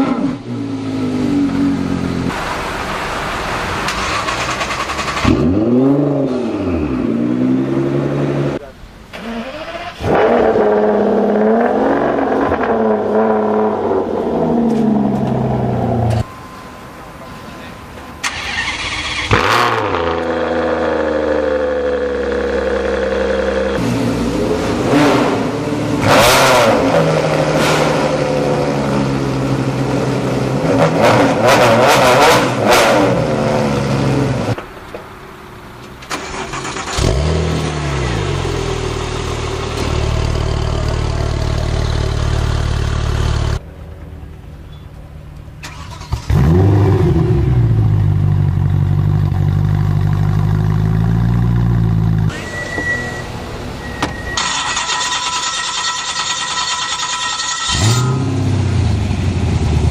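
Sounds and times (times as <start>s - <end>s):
engine starting: 3.8s - 5.6s, 9.1s - 10.2s, 18.2s - 19.8s, 36.0s - 37.4s, 45.6s - 46.6s, 54.3s - 58.2s
sports car engine revving: 3.9s - 8.7s, 18.5s - 34.6s, 36.3s - 43.6s, 46.0s - 52.4s
sports car engine idling: 38.3s - 45.6s, 47.5s - 52.3s.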